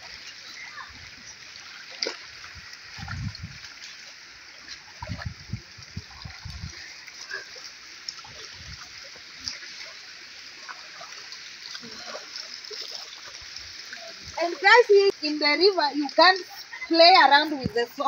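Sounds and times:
river water splashing: 0.0 - 18.0.

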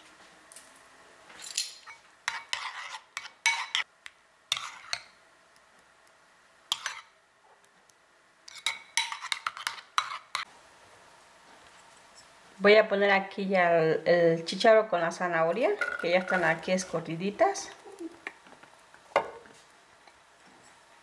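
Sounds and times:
metal spoon scraping a bowl: 1.8 - 3.8, 4.5 - 5.1, 6.7 - 7.1, 8.5 - 10.4.

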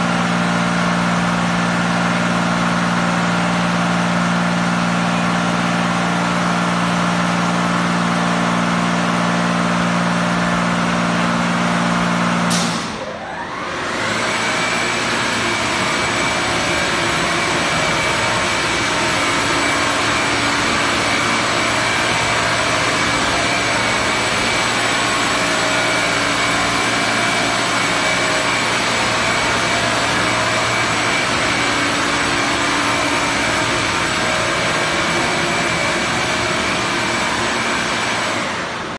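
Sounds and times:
drying blower whining: 0.0 - 38.9
pump humming: 13.5 - 38.9.

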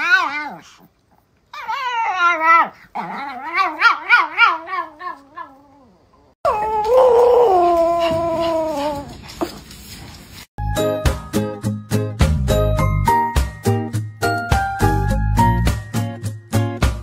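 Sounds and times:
dogs whining and yowling: 0.0 - 0.9, 1.5 - 9.2
dog howling: 1.6 - 9.1.

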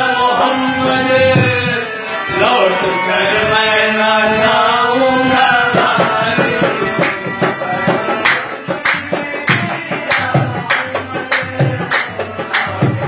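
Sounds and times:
person singing long bending notes: 0.0 - 13.0
sharp percussive strokes: 6.8 - 13.0.

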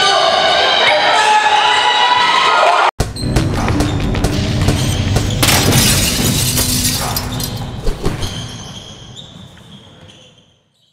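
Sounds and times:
loud shattering crash: 5.4 - 7.6.

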